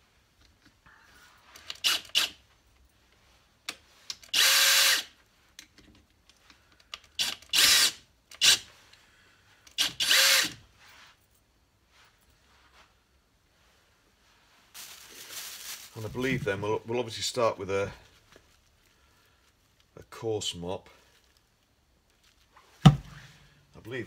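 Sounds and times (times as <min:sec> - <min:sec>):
cordless drill spinning: 0:01.6 - 0:02.4, 0:04.2 - 0:05.2, 0:07.1 - 0:08.7, 0:09.7 - 0:10.6.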